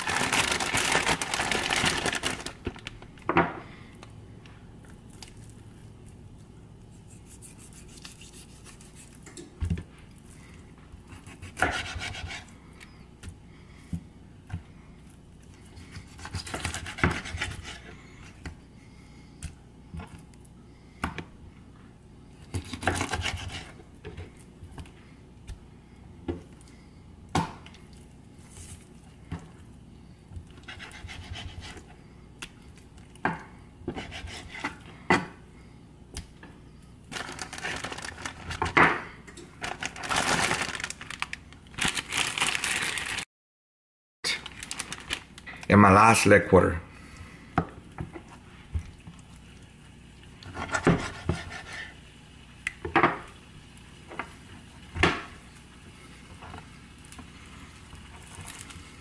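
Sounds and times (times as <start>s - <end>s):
plastic bag crinkling: 0.0s - 3.3s, 37.1s - 38.7s, 39.6s - 43.3s, 44.3s - 45.7s.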